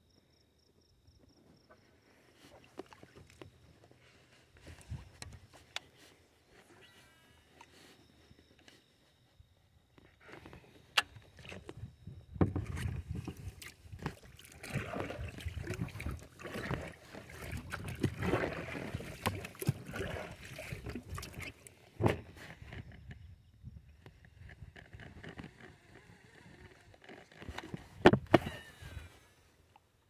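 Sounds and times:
knocks against plastic hull: 28.0 - 28.5.

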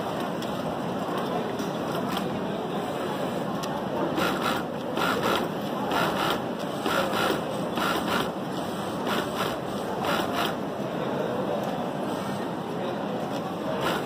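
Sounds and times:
sewing machine stitching: 4.1 - 8.4, 9.0 - 10.6, 13.8 - 14.0.

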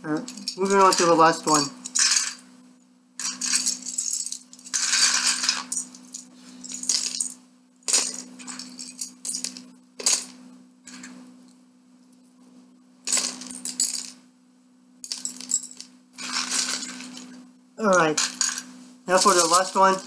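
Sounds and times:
plastic bricks clattering into cup: 0.3 - 2.4, 3.2 - 11.2, 13.1 - 14.2, 15.0 - 20.0.

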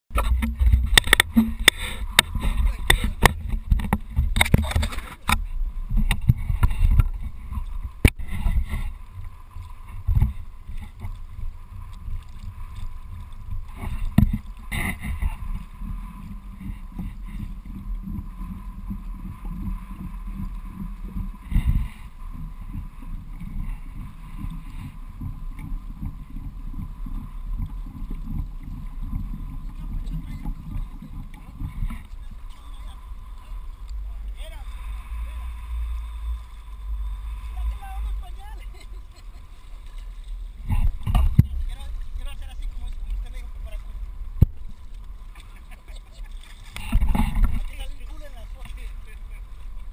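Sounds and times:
low uneven rumble: 0.1 - 49.9
water sloshing against kayak hull: 0.1 - 49.9
sharp knocks and clicks: 0.2 - 5.4.

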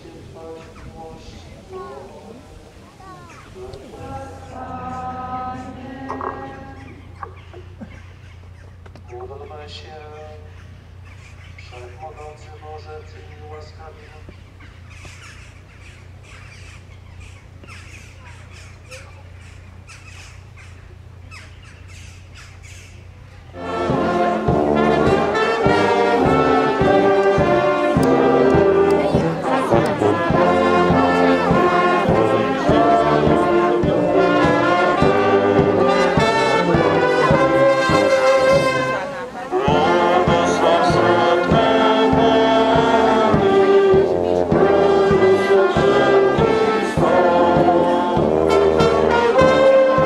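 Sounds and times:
brass band playing: 3.6 - 6.9, 23.5 - 50.0.

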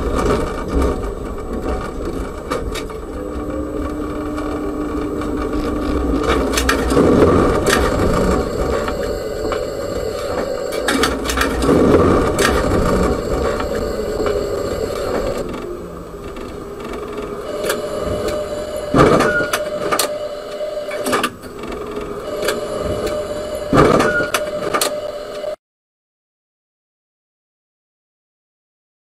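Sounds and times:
tram running with rattles: 0.0 - 25.4
steady whine: 0.0 - 25.6.

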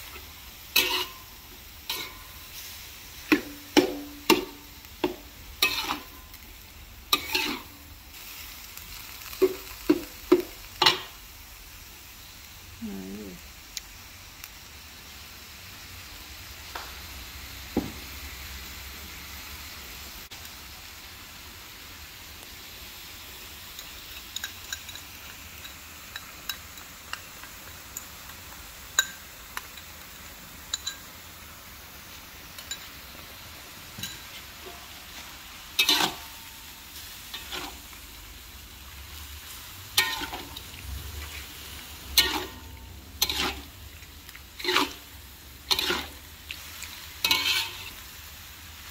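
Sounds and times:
metal spatula scraping a pan: 0.0 - 6.4, 7.1 - 7.9, 34.0 - 36.6, 37.2 - 38.0, 39.5 - 48.0
meat sizzling in a wok: 0.0 - 48.9.

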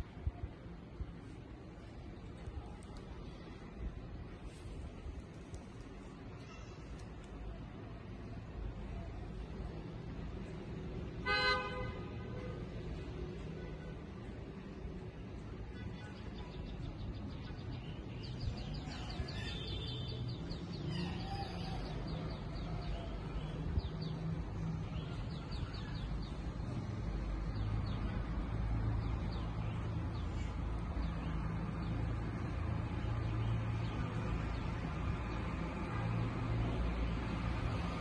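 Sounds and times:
birds chirping and trilling: 16.0 - 24.2.

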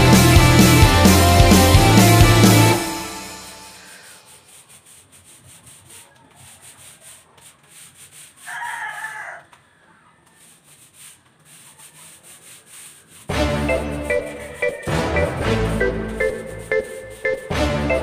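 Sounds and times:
paint roller rubbing on concrete: 3.7 - 9.2, 10.1 - 18.0.

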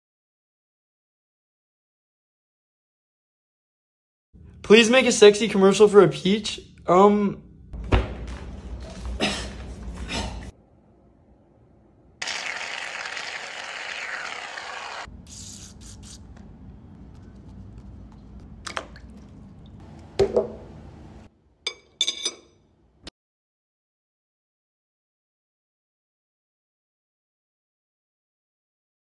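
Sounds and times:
spray hissing: 14.3 - 16.2
metal spoon clinking on plate: 21.7 - 22.6.

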